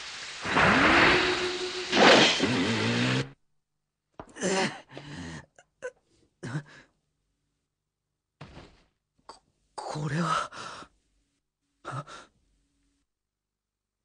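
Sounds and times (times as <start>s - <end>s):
person gasping and groaning: 4.3s - 6.9s, 11.8s - 12.3s.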